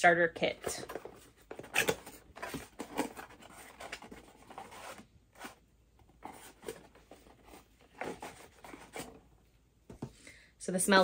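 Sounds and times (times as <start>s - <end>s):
cardboard box scraping and rustling: 0.9s - 5.6s.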